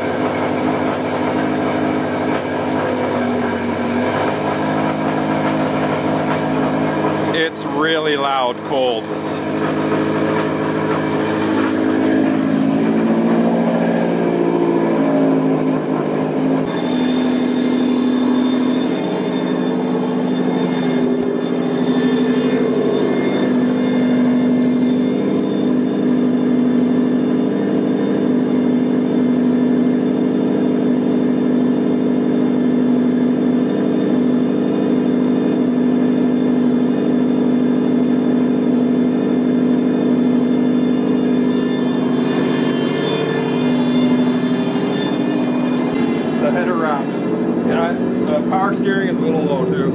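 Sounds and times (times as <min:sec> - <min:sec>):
power steering pump whine: 0:00.0 - 0:49.9.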